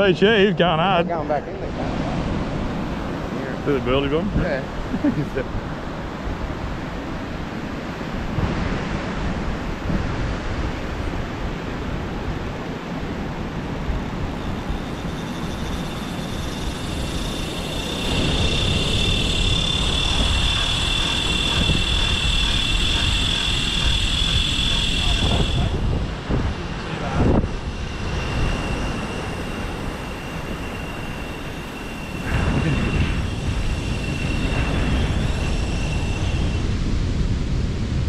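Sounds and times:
breaking surf: 0.0 - 38.0
wind on microphone: 0.0 - 38.0
fishing reel whining: 14.4 - 36.7.

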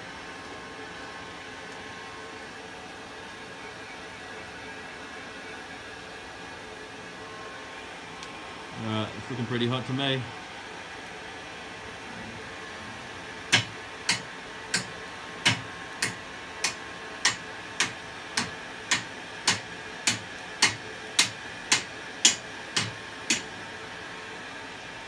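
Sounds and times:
hammer striking hot steel: 13.5 - 23.5.

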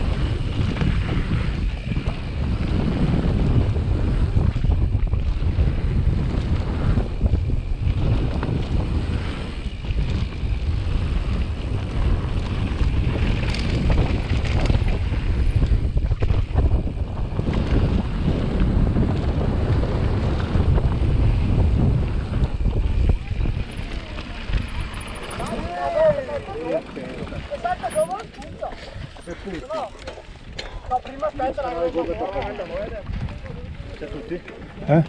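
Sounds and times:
tyres rumbling on gravel: 0.0 - 35.0
wind on microphone: 0.0 - 35.0
small rattles and clicks: 7.4 - 19.2, 22.2 - 35.0.

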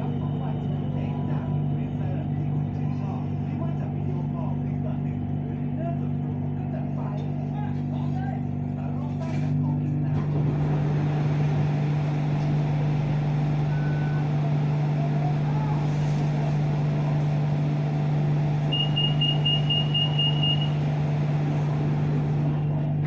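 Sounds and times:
city road traffic drone: 8.5 - 23.0
short high-pitched beeps: 18.7 - 20.7
short single tone: 18.7 - 20.8.

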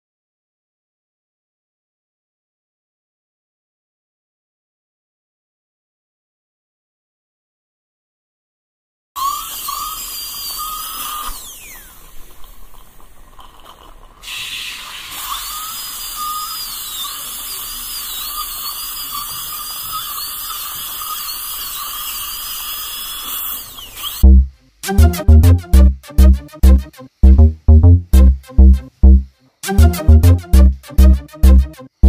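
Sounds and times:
dental drill whine: 9.2 - 12.8, 14.2 - 24.3
hiss: 9.2 - 24.2.

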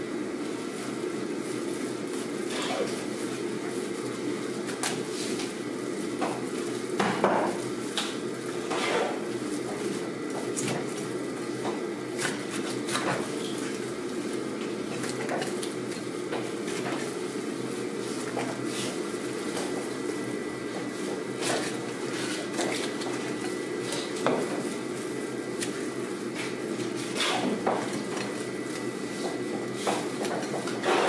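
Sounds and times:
knife on plastic cutting board: 8.7 - 9.2.

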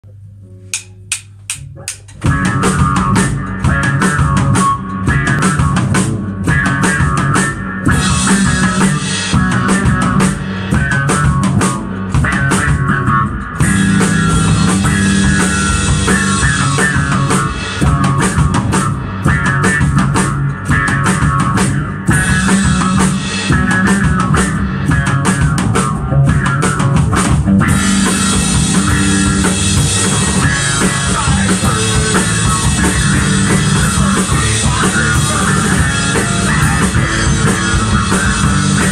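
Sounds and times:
drum kit playing: 0.0 - 38.9
electric bass guitar: 0.0 - 38.9.

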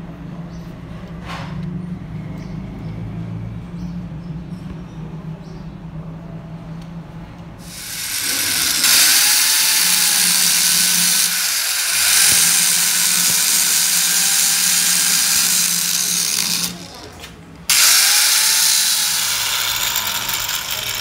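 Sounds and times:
angle grinder grinding steel: 7.6 - 21.0.

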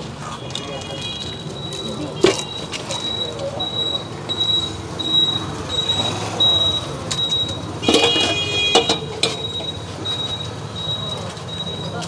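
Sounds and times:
pot lid and utensils clattering: 2.1 - 2.8, 7.8 - 9.7
sharp metal knocks: 7.8 - 9.7.

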